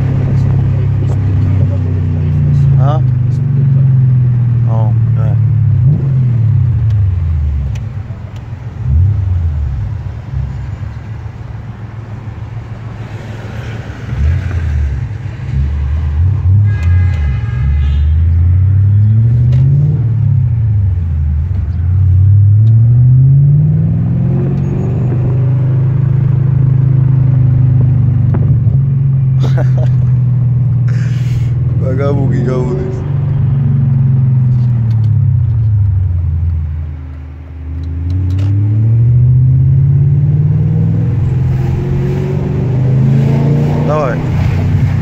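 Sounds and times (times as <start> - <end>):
car engine accelerating through gears: 18.3 - 36.7, 37.5 - 45.0.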